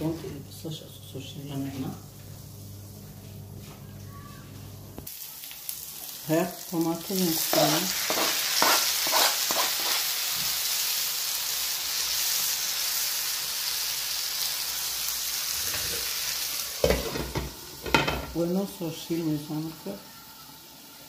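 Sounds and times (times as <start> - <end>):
vegetables sizzling in oil: 5.0 - 21.0
spoon scraping a pan: 7.4 - 10.1.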